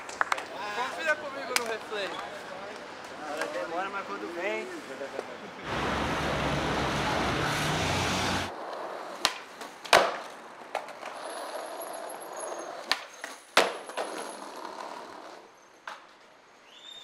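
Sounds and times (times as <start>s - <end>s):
skateboard wheels rolling on concrete: 0.0s - 17.0s
skateboard clacking on ground: 8.6s - 16.2s.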